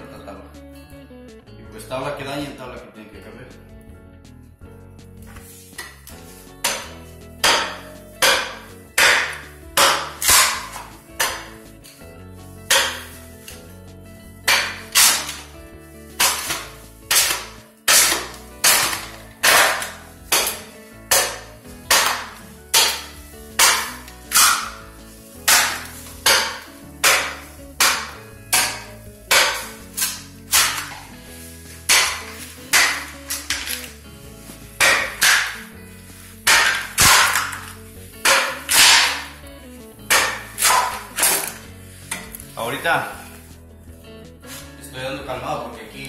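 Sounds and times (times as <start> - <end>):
mattock striking wood planks: 5.8 - 12.0, 12.7 - 13.6, 14.5 - 15.5, 16.2 - 31.2, 31.8 - 35.8, 36.4 - 39.4, 40.1 - 42.3.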